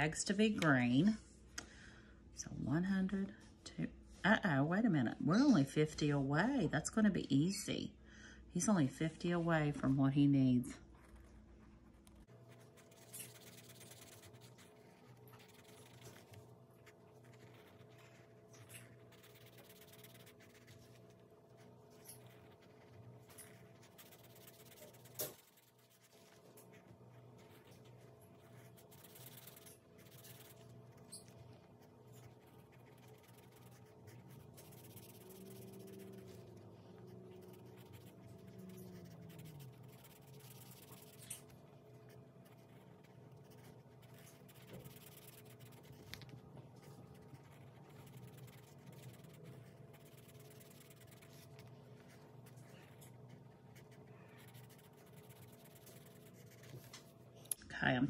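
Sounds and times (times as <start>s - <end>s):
marker scratching on paper: 12.5s - 56.9s.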